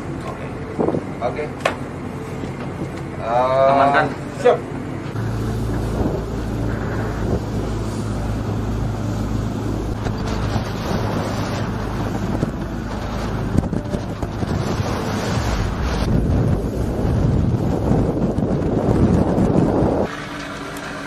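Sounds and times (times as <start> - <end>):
boat engine drone: 0.0 - 21.0
wind buffeting microphone: 0.7 - 1.2, 5.1 - 20.1
choppy sea wash: 3.4 - 21.0.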